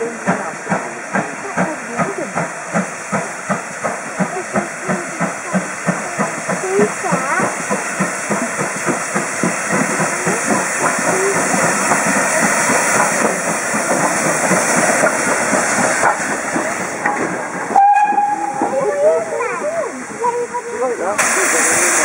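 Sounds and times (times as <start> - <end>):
steam hissing: 0.0 - 22.0
steam locomotive exhaust beats: 0.0 - 22.0
steam whistle: 17.8 - 18.8.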